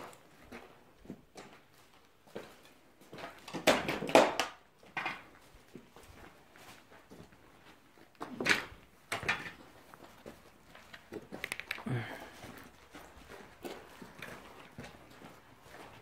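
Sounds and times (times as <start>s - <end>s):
footsteps on rubble: 0.0s - 16.0s
small clicks: 10.9s - 11.9s.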